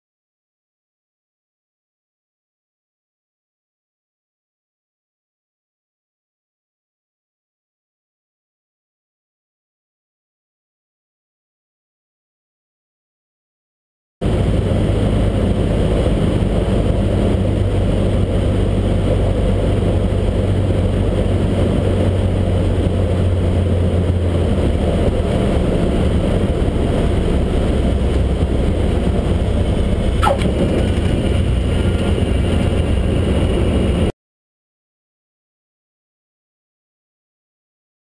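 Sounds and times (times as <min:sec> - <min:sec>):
aircraft engine droning: 0:14.2 - 0:34.1.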